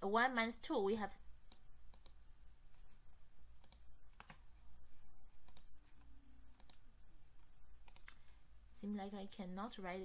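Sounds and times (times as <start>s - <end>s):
faint low hum: 0.0s - 10.0s
computer mouse clicking: 1.5s - 2.2s, 3.6s - 4.4s, 5.4s - 6.8s, 7.8s - 8.3s.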